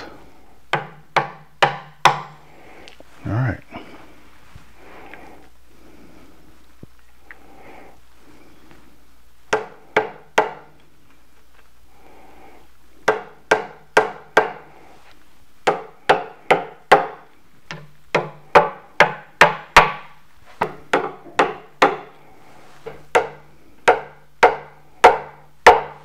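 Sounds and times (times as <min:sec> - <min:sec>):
mallet knocking wooden blocks: 0:00.7 - 0:02.4, 0:09.5 - 0:10.7, 0:13.0 - 0:14.6, 0:15.6 - 0:22.1, 0:22.9 - 0:26.0.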